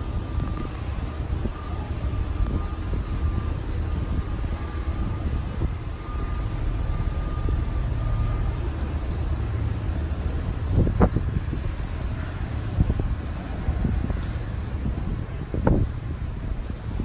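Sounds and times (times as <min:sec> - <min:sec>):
faint high whine: 0:00.0 - 0:17.0
wind buffeting microphone: 0:00.0 - 0:17.0.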